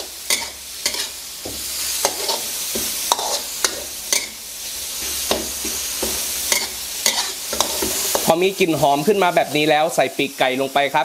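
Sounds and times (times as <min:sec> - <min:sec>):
metal spatula scraping a wok: 0:00.0 - 0:08.4
paste sizzling in hot oil: 0:00.0 - 0:11.0.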